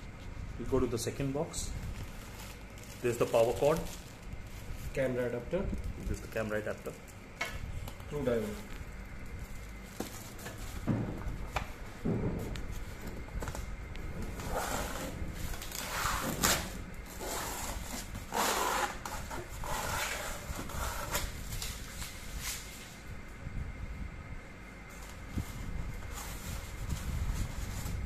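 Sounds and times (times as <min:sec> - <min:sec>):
styrofoam and plastic rustling: 0:00.9 - 0:06.9, 0:12.7 - 0:23.0.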